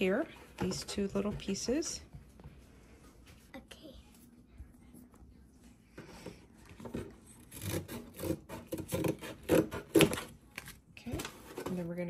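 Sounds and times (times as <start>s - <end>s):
scissors cutting cardboard: 7.0s - 10.7s.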